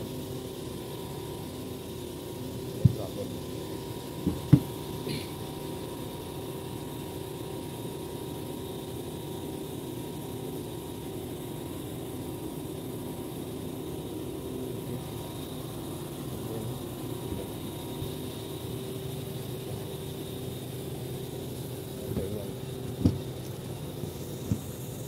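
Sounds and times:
faint constant whine: 0.0s - 25.0s
low mechanical hum: 0.0s - 25.0s
sharp knocks: 4.2s - 4.8s, 22.9s - 23.3s.

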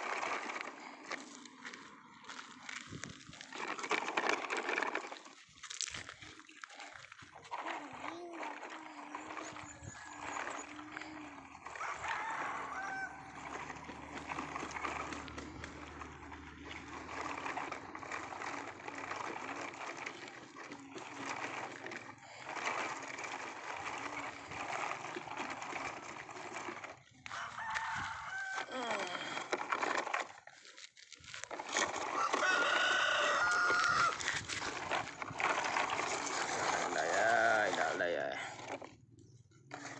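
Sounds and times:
plastic toy trucks rattling on gravel: 0.0s - 39.9s
drawn-out crowing call: 8.5s - 30.2s, 31.7s - 38.3s.

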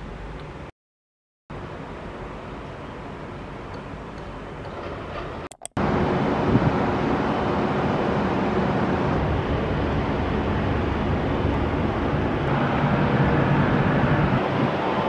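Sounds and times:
wind buffeting microphone: 5.8s - 15.0s.

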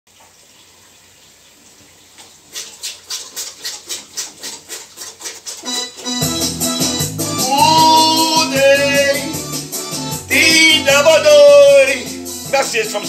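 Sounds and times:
backing music with bass: 5.7s - 13.0s
sharp percussion beat: 5.7s - 13.0s.

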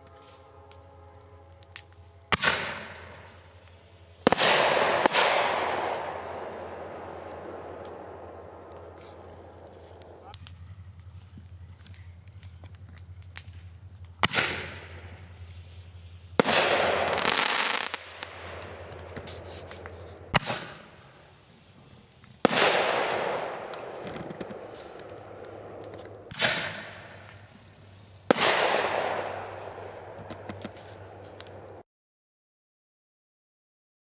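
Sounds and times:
fireworks crackle: 1.6s - 11.0s, 11.8s - 21.0s, 22.2s - 31.8s
fireworks bangs: 2.3s - 3.4s, 4.2s - 10.5s, 14.2s - 15.4s, 16.3s - 21.2s, 22.3s - 31.8s.

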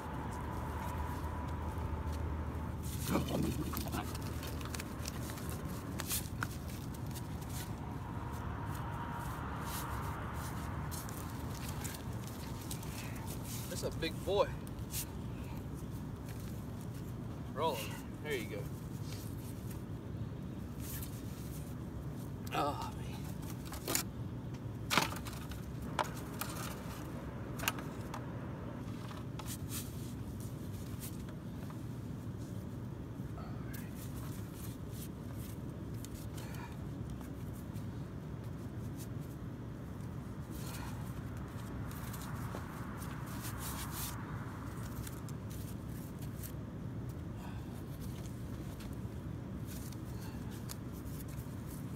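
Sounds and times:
steady low rumble: 0.0s - 51.9s
scuffling in dry corn stalks: 2.8s - 15.4s, 40.4s - 51.9s.

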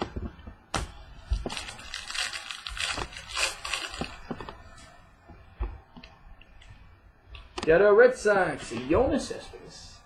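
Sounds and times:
plastic crinkling and rustling: 0.0s - 5.4s.

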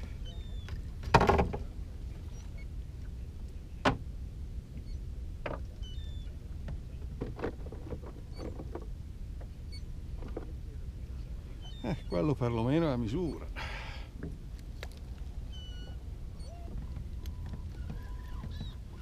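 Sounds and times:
steady low rumble: 0.0s - 19.0s.

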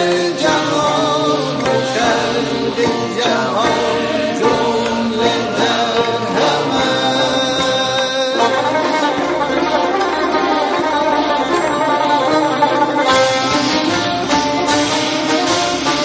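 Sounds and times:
man singing: 0.0s - 9.4s
instrumental accompaniment: 0.0s - 16.0s.

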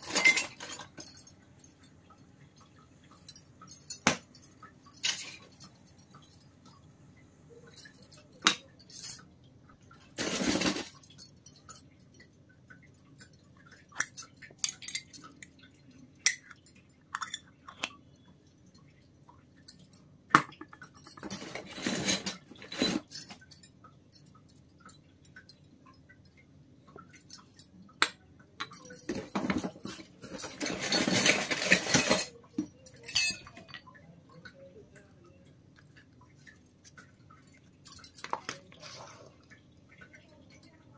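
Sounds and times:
toy metal pans clinking: 0.0s - 2.0s, 2.6s - 6.8s, 7.5s - 9.3s, 10.0s - 12.2s, 13.0s - 18.2s, 27.1s - 35.1s, 35.8s - 40.8s.

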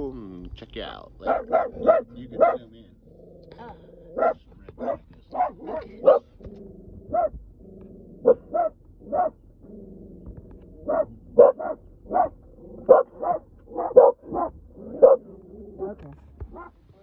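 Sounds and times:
dog barking: 1.2s - 2.7s, 3.6s - 6.4s, 7.1s - 7.4s, 8.2s - 9.4s, 10.8s - 16.8s.

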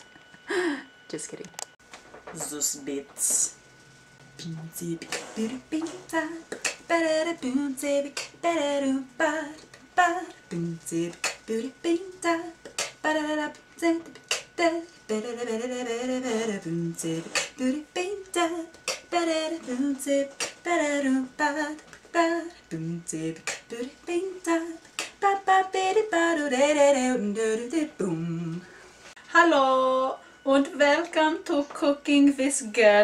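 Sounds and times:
beatboxed mouth clicks and pops: 4.4s - 5.4s, 6.5s - 6.9s, 8.1s - 8.4s, 11.1s - 11.5s, 12.6s - 13.0s, 14.0s - 14.6s, 17.3s - 17.6s, 18.8s - 19.1s, 20.3s - 20.6s, 23.4s - 23.8s, 25.0s - 25.2s
woman singing wordless notes: 4.4s - 33.0s.

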